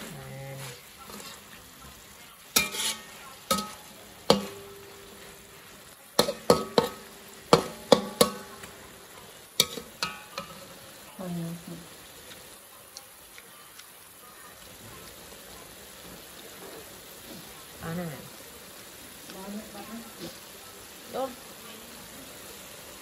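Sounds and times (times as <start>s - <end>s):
metal spatula scraping wok: 0.0s - 8.7s, 9.6s - 10.9s, 19.7s - 20.6s
food sizzling: 0.0s - 23.0s.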